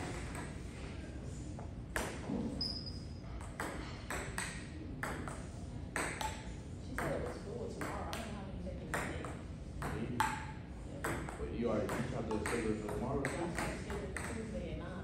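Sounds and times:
ping-pong ball hitting paddles: 0:00.0 - 0:00.6, 0:01.9 - 0:02.7, 0:03.4 - 0:14.5.

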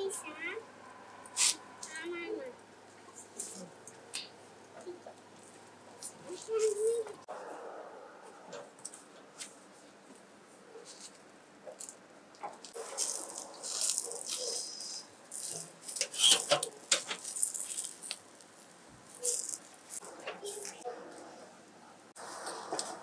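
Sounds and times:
juices hissing on hot coals: 0:12.7 - 0:20.0.

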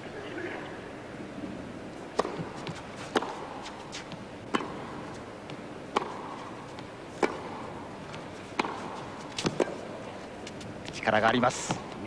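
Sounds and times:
racket hitting tennis ball: 0:02.1 - 0:10.6.

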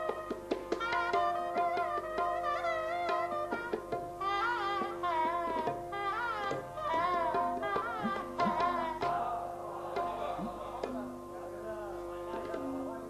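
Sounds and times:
shehnai melody: 0:00.0 - 0:13.0
tabla playing: 0:00.0 - 0:13.0.

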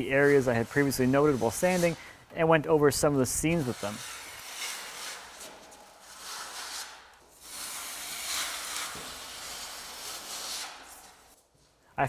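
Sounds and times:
knife scraping joint compound: 0:03.4 - 0:11.4.

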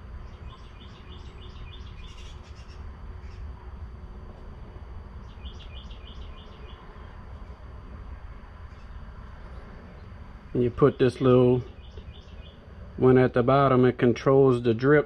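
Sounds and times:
steady low rumble: 0:00.0 - 0:15.0
bird chirping: 0:00.2 - 0:03.5, 0:05.2 - 0:07.2, 0:08.7 - 0:12.7.

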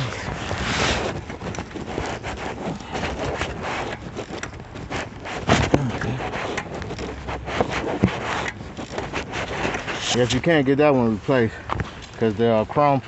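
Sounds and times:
wind on microphone: 0:00.0 - 0:10.1.

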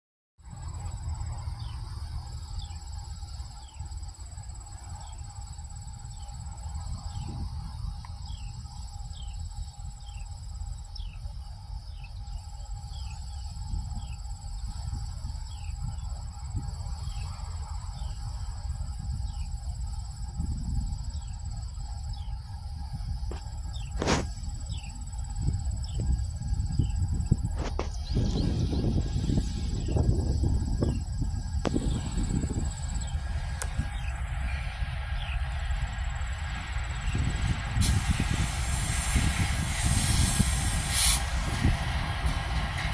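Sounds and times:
diesel locomotives rumbling: 0:00.4 - 0:42.9
insects buzzing: 0:00.5 - 0:42.9.

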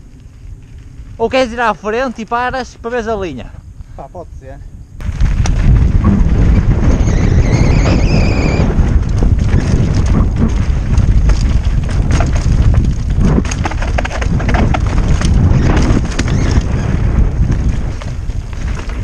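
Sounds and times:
wind buffeting microphone: 0:00.0 - 0:19.0
bike clattering over rocks: 0:08.8 - 0:19.0.

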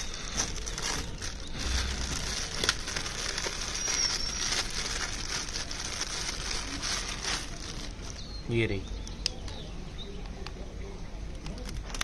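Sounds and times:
plastic packaging crinkling: 0:00.0 - 0:09.2.

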